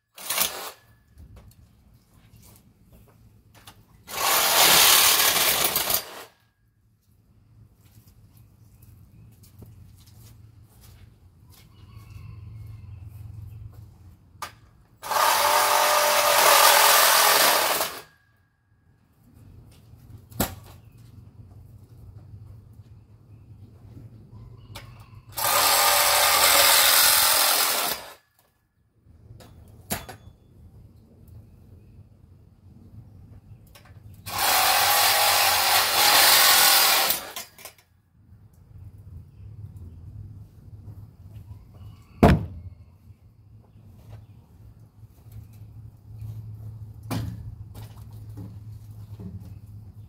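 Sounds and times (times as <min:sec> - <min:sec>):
handheld power tool running: 0:00.2 - 0:00.8, 0:04.1 - 0:06.3, 0:15.0 - 0:18.1, 0:25.4 - 0:28.2, 0:34.3 - 0:37.6.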